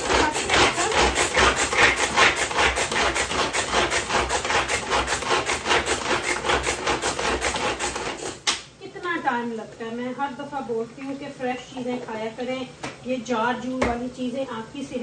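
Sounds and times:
hand food chopper grinding: 0.0s - 8.4s.

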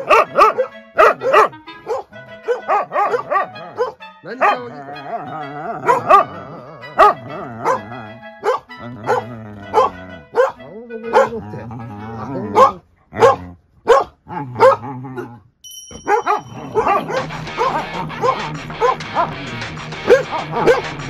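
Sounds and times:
dog barking: 0.0s - 11.5s, 12.4s - 15.4s, 16.0s - 19.4s, 20.0s - 21.0s.

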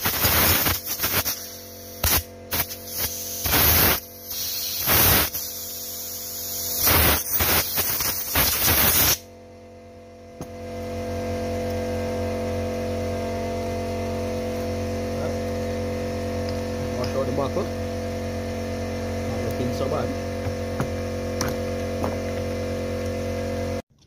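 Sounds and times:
compressed air blasts: 0.0s - 9.3s.

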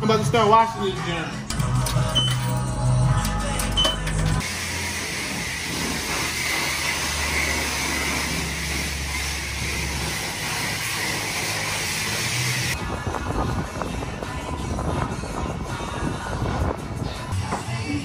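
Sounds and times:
pressure washer spraying water: 4.4s - 12.8s.

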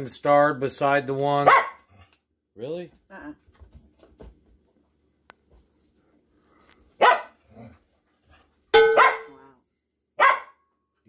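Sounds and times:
dog barking: 1.4s - 1.9s, 7.0s - 7.4s, 8.8s - 9.5s, 10.2s - 10.6s.

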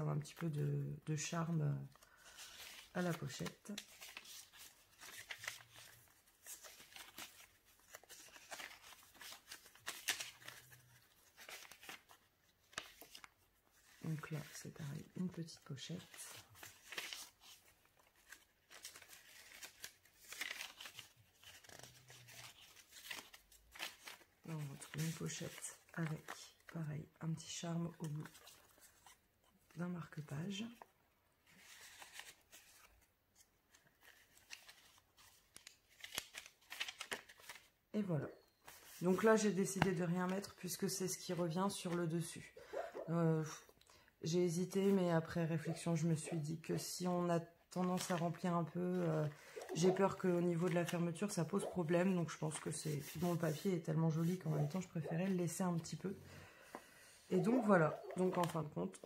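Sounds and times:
paper pages rustling and flipping: 1.8s - 26.8s, 28.0s - 29.7s, 30.6s - 37.8s, 38.5s - 40.6s, 47.8s - 59.0s.

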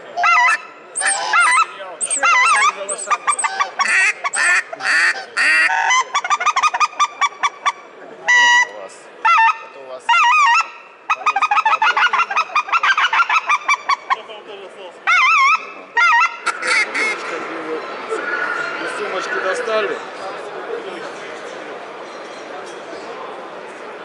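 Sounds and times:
goose call honks: 0.0s - 14.3s, 15.1s - 19.7s
goose call clucks: 0.0s - 14.4s, 15.0s - 19.9s.

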